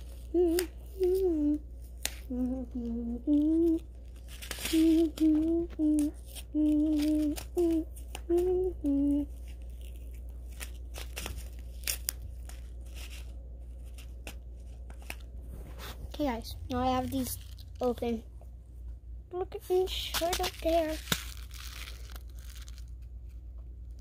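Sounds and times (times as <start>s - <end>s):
person humming: 0.1s - 9.5s
plastic packets crinkling: 3.2s - 15.4s, 16.2s - 18.2s, 19.6s - 23.4s
tearing rustle: 3.3s - 8.2s, 9.2s - 16.1s, 20.1s - 23.1s.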